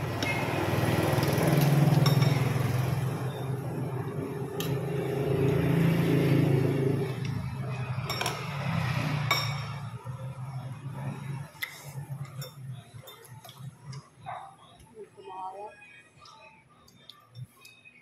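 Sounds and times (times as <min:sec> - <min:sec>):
metal cutlery clinking on bowls: 0:01.1 - 0:02.8, 0:07.2 - 0:10.1, 0:11.4 - 0:14.1.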